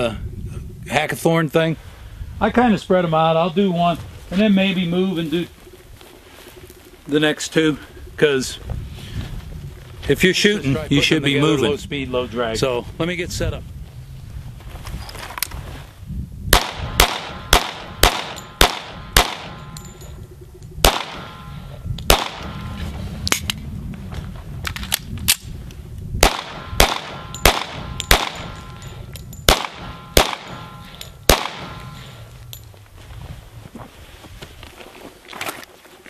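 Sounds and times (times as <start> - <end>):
pistol shots: 16.5 - 19.8, 20.8 - 23.4, 26.2 - 28.8, 29.4 - 32.2.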